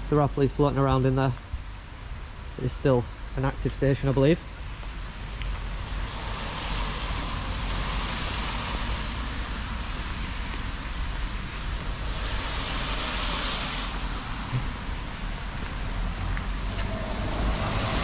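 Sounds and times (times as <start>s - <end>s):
steady outdoor hiss: 0.0s - 18.0s
wind rumbling on microphone: 0.9s - 18.0s.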